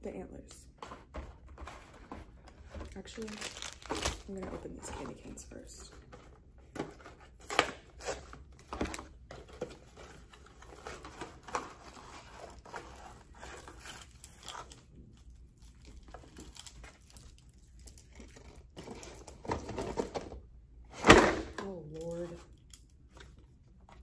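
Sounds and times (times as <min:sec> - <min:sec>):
cardboard box crinkling and tearing: 0:03.0 - 0:04.4.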